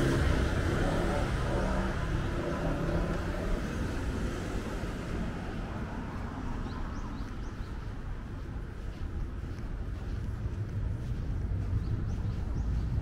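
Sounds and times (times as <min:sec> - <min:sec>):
road traffic rumble: 0:00.0 - 0:13.0.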